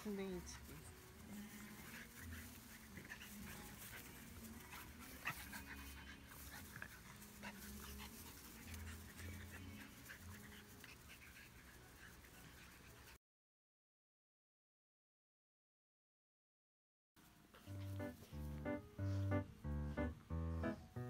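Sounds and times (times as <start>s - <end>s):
dogs panting and scuffling: 0.0s - 13.2s, 17.5s - 20.9s.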